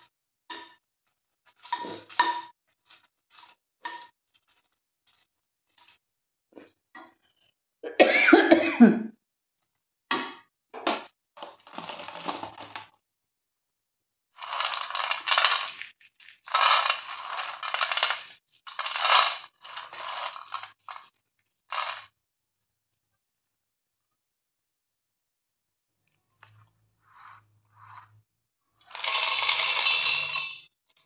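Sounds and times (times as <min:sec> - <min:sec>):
peanuts rattling on steel plate: 0:14.4 - 0:21.0, 0:28.9 - 0:30.6.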